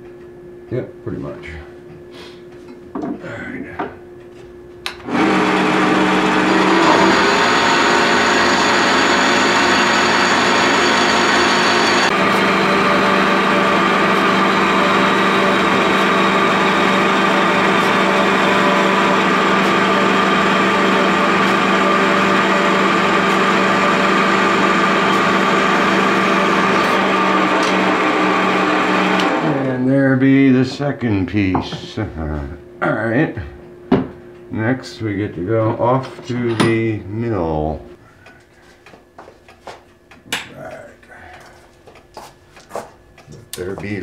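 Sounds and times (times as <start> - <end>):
band saw cutting metal: 5.1 - 29.6.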